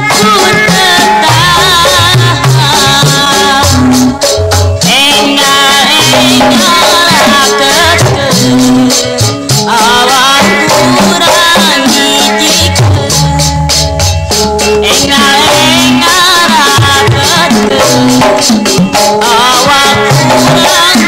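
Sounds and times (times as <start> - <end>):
hand drum strokes: 0.0 - 21.0
gamelan ensemble music: 1.0 - 5.2, 12.8 - 16.2.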